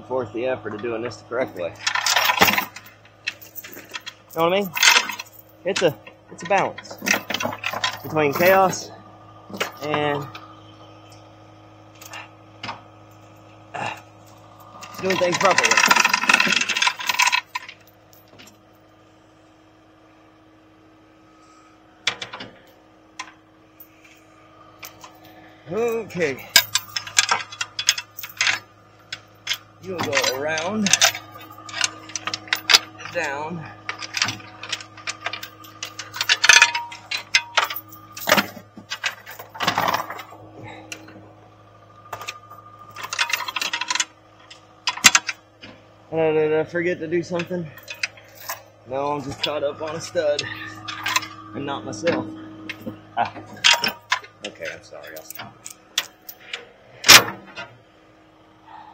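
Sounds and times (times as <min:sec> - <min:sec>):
steel chain rattling: 0:01.5 - 0:08.8, 0:14.7 - 0:18.6, 0:24.8 - 0:40.4, 0:42.1 - 0:45.4, 0:47.2 - 0:52.0, 0:52.7 - 0:57.3.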